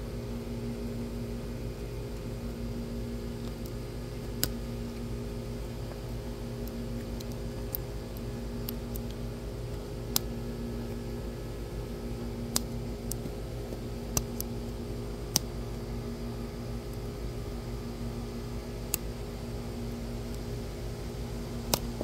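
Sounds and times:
steady background hum: 0:00.0 - 0:22.0
plastic clicks and ticks: 0:21.7 - 0:21.9.

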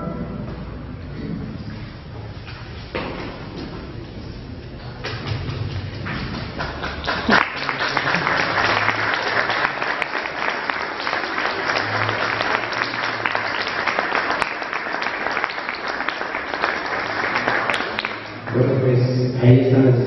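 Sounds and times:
audience applauding: 0:04.8 - 0:18.6.

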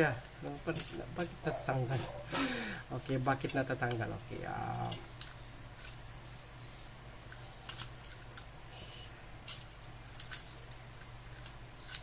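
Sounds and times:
plastic toy parts clicking: 0:03.0 - 0:06.4, 0:07.3 - 0:08.5, 0:09.5 - 0:12.0.

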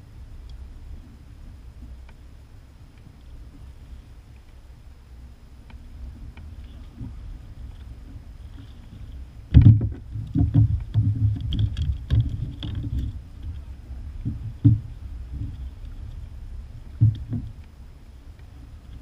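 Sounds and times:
thumps on plastic kayak hull: 0:09.5 - 0:13.0, 0:14.3 - 0:14.9.

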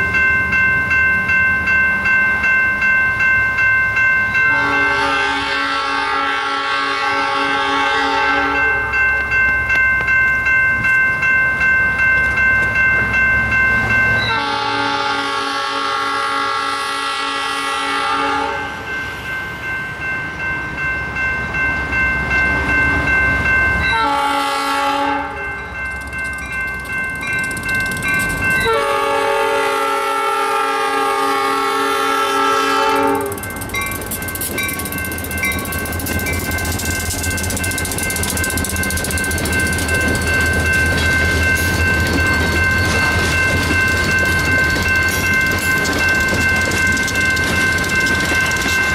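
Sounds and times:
electronic crossing bell dinging: 0:00.0 - 0:05.3, 0:08.3 - 0:14.7, 0:18.7 - 0:29.2, 0:32.6 - 0:48.9
locomotive air horn blasts: 0:04.5 - 0:08.8, 0:14.3 - 0:18.8, 0:23.9 - 0:25.4, 0:28.6 - 0:33.4
locomotive rumble: 0:21.4 - 0:48.9.

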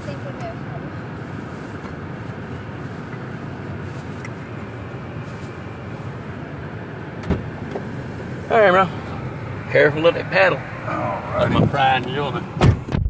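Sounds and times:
car road and engine rumble: 0:00.0 - 0:13.0.

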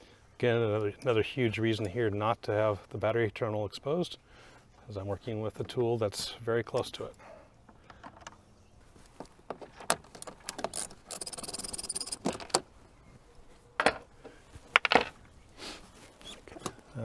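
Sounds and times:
metal tools clinking: 0:10.2 - 0:12.4
ratchet wrench clicking: 0:10.6 - 0:12.2.

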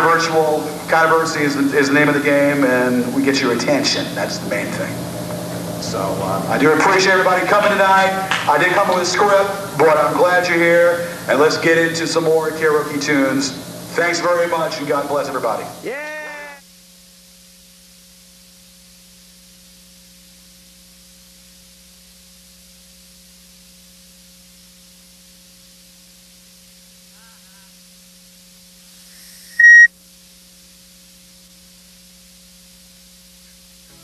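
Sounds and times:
electrical hum and hiss: 0:00.0 - 0:34.0
high-pitched beep: 0:29.6 - 0:29.9.

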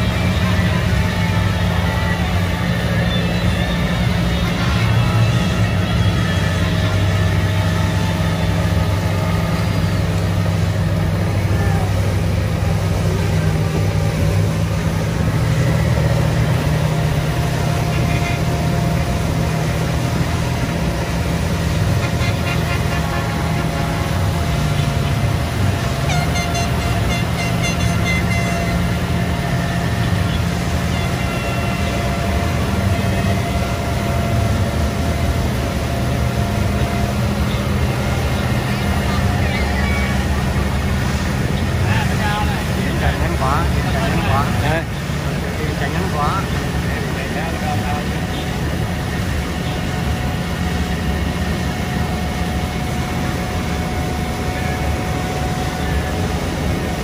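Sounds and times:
boat horn toots: 0:00.0 - 0:57.0
motorboat engine running: 0:00.0 - 0:57.0
water churning in boat wake: 0:00.0 - 0:57.0.

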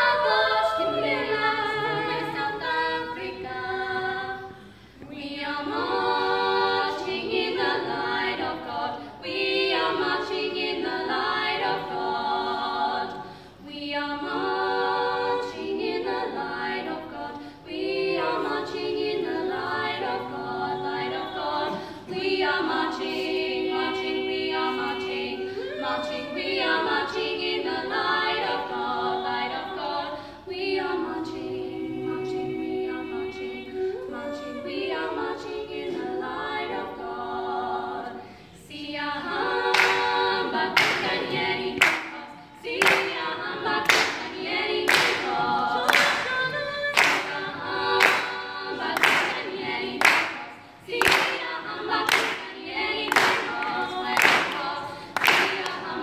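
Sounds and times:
women singing a cappella: 0:00.0 - 0:56.0
hands clapping a steady beat: 0:39.6 - 0:56.0.

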